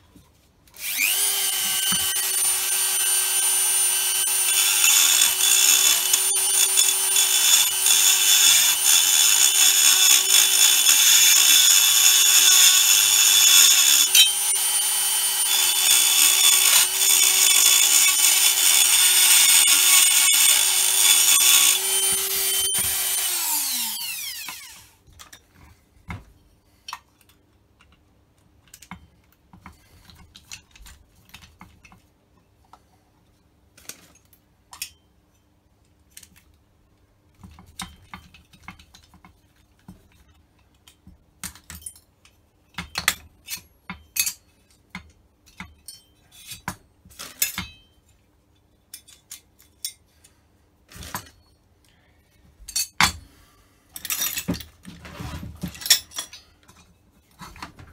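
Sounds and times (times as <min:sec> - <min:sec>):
metal parts and tools clinking: 0:01.7 - 0:24.6, 0:55.6 - 0:57.7.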